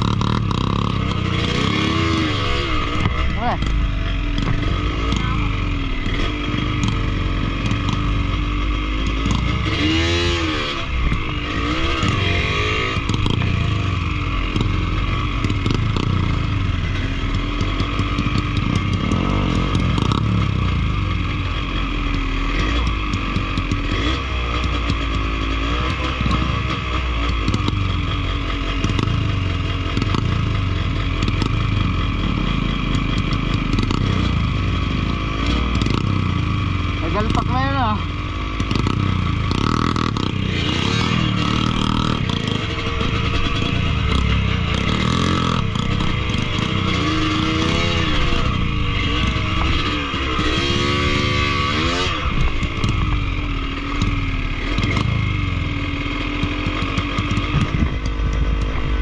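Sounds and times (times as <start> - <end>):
two-stroke motorcycle engine revving: 0.0 - 59.0
motorcycle clattering over rocks: 56.4 - 59.0.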